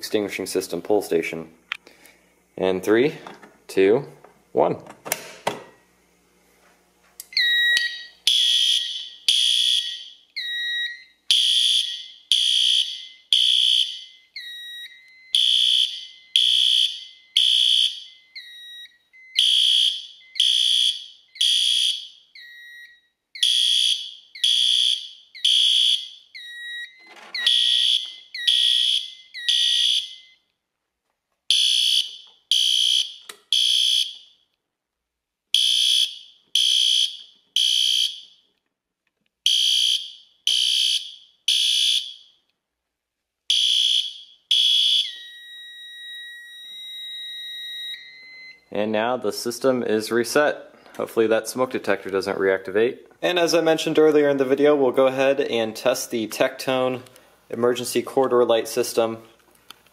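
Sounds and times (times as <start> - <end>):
lower alarm tone: 7.3 - 30.5, 43.5 - 48.8
fire alarm horn blasts: 7.4 - 30.5, 31.5 - 34.5, 35.5 - 38.4, 39.5 - 42.4, 43.5 - 48.7.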